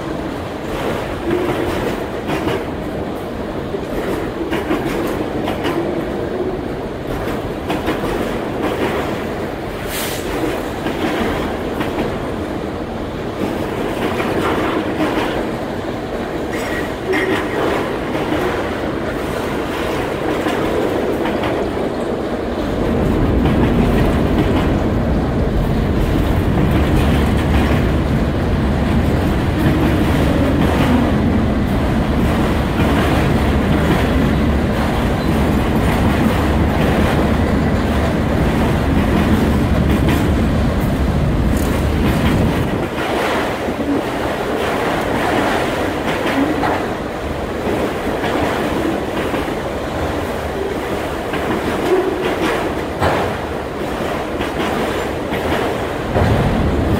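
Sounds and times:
freight train rumble: 0:00.0 - 0:56.9
wheels clacking over rail joints: 0:13.3 - 0:56.9.

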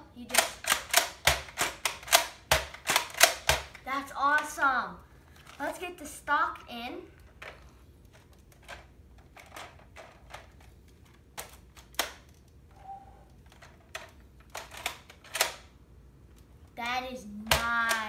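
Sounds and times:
toy blaster plastic clicks: 0:17.5 - 0:18.0.

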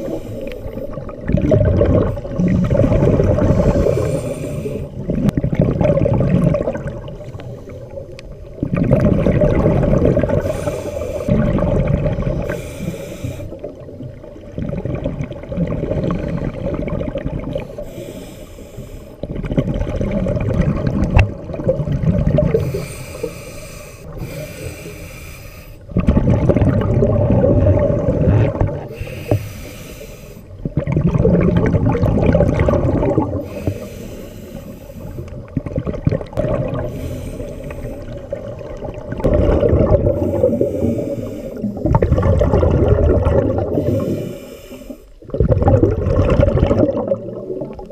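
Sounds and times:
diver breathing through regulator: 0:00.0 - 0:01.0, 0:02.3 - 0:05.0, 0:10.3 - 0:11.6, 0:12.3 - 0:13.8, 0:17.6 - 0:19.2, 0:22.5 - 0:25.9, 0:28.8 - 0:30.6, 0:33.3 - 0:35.5, 0:36.7 - 0:38.4, 0:39.9 - 0:42.4, 0:43.6 - 0:45.2
bubbling exhalations: 0:00.0 - 0:07.2, 0:08.6 - 0:13.9, 0:19.3 - 0:23.4, 0:25.9 - 0:29.5, 0:30.6 - 0:34.2, 0:35.4 - 0:44.5, 0:45.2 - 0:47.9.

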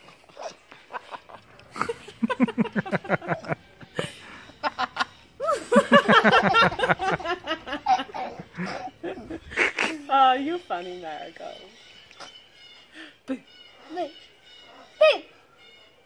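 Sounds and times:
people laughing: 0:00.1 - 0:10.1
woman laughing: 0:00.9 - 0:10.2
small child laughing: 0:05.4 - 0:10.0.

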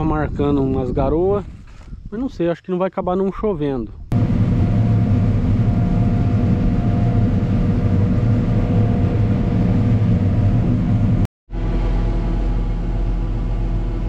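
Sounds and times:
faint steady whine: 0:04.1 - 0:14.0
heavy machinery engine hum: 0:04.1 - 0:14.0.

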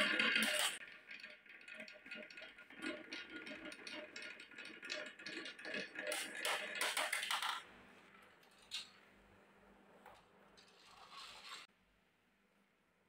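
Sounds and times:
glass marbles rolling on wooden rail: 0:00.0 - 0:07.7
marbles knocking together: 0:06.1 - 0:07.7.

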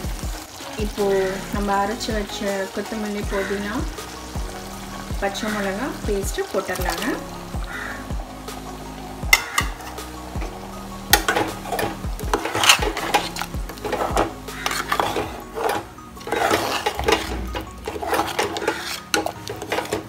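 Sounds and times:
metal spoon scraping pot: 0:11.2 - 0:20.0.

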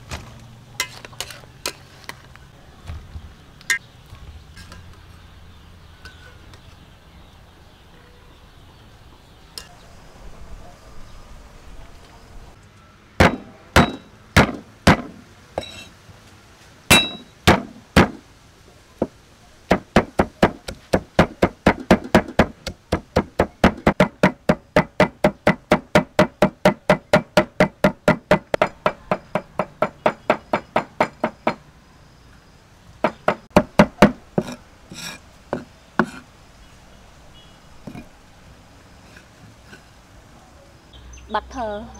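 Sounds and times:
cleaver chopping on wooden board: 0:13.2 - 0:15.2, 0:16.9 - 0:18.2, 0:19.7 - 0:31.6, 0:33.0 - 0:34.6.

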